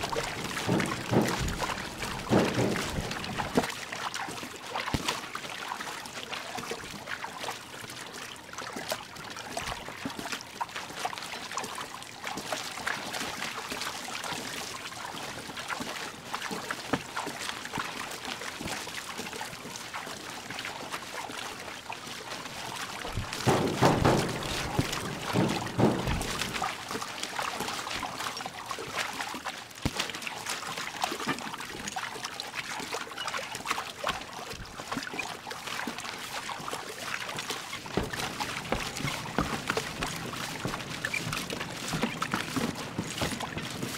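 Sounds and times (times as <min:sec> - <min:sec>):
deep water surge: 0:00.0 - 0:06.9, 0:22.4 - 0:31.0, 0:33.7 - 0:43.9
water splashing and trickling: 0:00.0 - 0:43.9.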